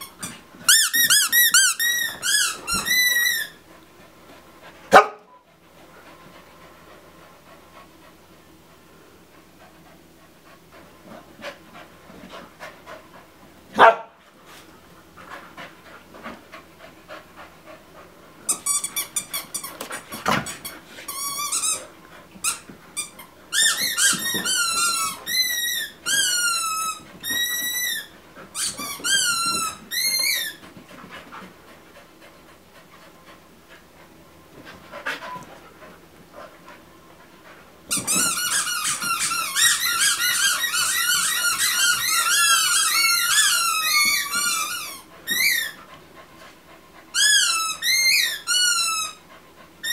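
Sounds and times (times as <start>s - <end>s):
squeaky dog toy squeaking: 0.0s - 3.6s, 22.5s - 30.6s, 37.9s - 45.8s, 47.2s - 49.2s.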